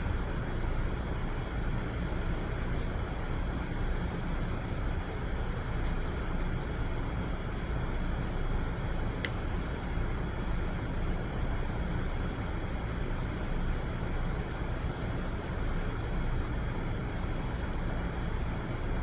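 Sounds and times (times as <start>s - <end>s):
low rumbling background noise: 0.0s - 19.0s.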